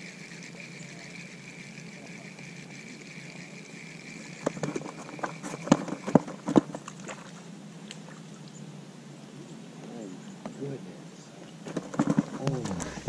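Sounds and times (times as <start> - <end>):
sharp knocks and clicks: 4.4 - 6.9, 11.7 - 13.0.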